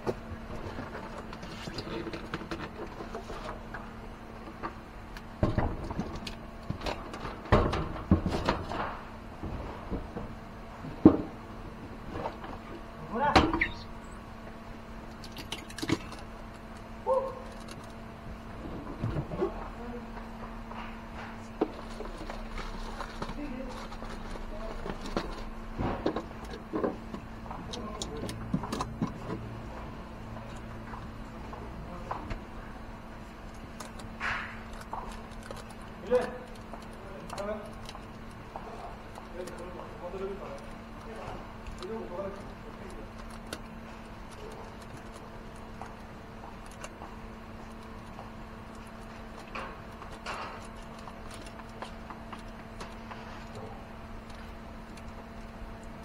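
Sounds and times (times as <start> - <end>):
plastic sheets rustling: 20.8 - 27.0.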